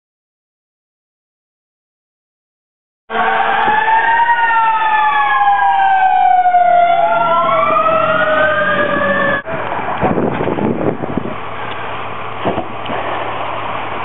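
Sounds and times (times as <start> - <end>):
fire engine sirens wailing: 3.1 - 14.0.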